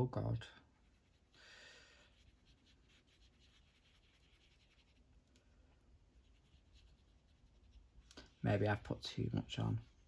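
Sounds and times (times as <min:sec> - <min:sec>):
sponge applicator rubbing on paper: 0:00.7 - 0:01.4, 0:02.0 - 0:05.2, 0:06.1 - 0:08.9.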